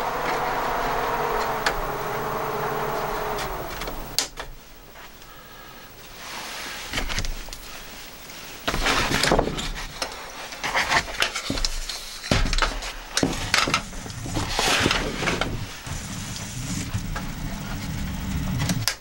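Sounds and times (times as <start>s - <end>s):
rubbing and scraping handling noise: 6.2s - 18.8s.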